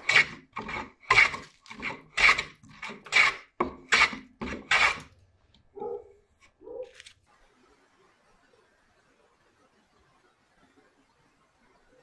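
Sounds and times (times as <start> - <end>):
hand plane rasping strokes: 0.0 - 5.1.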